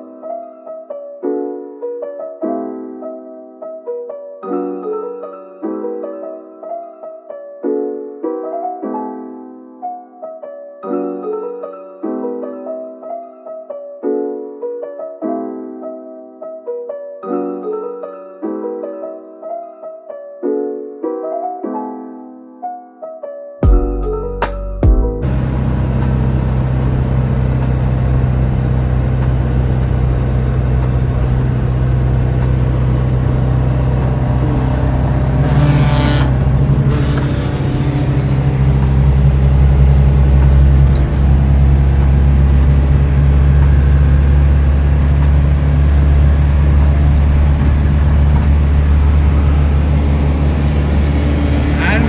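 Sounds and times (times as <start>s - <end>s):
car engine and road noise: 25.2s - 52.0s.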